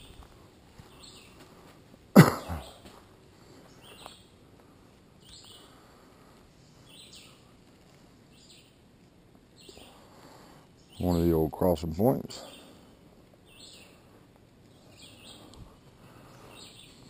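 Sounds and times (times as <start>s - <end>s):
person coughing loudly: 2.2s - 2.8s
faint high bird calls: 5.2s - 5.8s, 6.5s - 7.5s, 9.5s - 10.1s, 13.4s - 14.1s, 14.7s - 17.0s.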